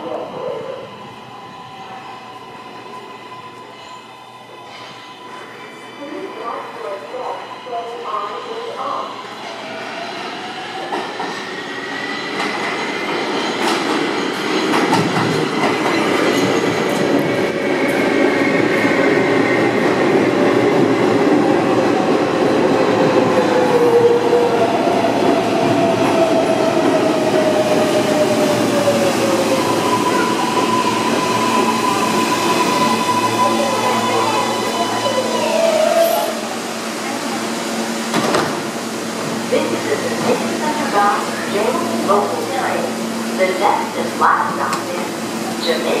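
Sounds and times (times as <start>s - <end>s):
train wheels rumbling on rails: 10.4s - 46.0s.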